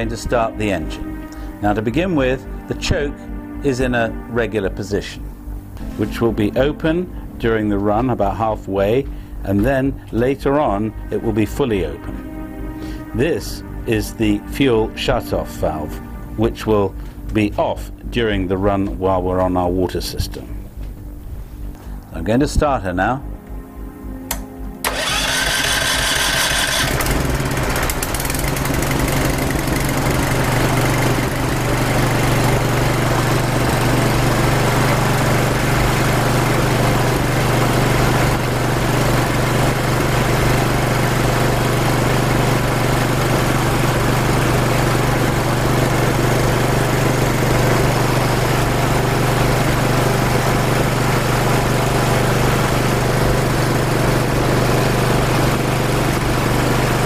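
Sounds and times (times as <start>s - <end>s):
small engine droning: 23.5s - 57.0s.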